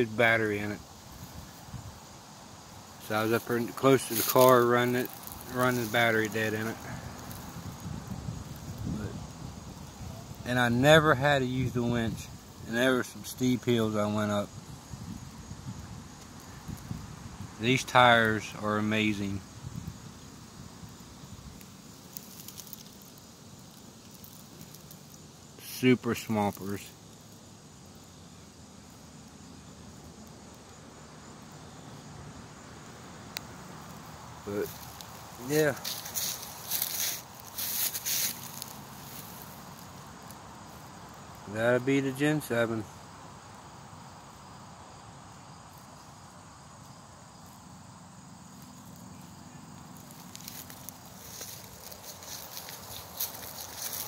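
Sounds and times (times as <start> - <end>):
crickets chirring: 0.0 - 54.0
faint outdoor background hiss: 0.0 - 54.0
dry leaves crackling underfoot: 0.4 - 10.6, 17.8 - 25.5, 31.6 - 41.5, 45.4 - 54.0.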